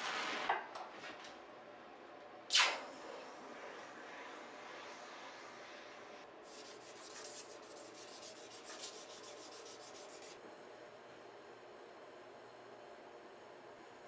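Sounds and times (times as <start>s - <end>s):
sandpaper scratching on steel: 6.5s - 10.4s.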